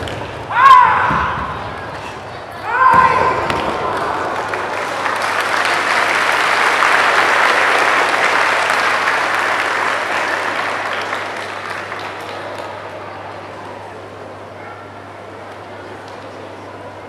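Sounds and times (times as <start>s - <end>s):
audience applauding: 3.6s - 13.1s.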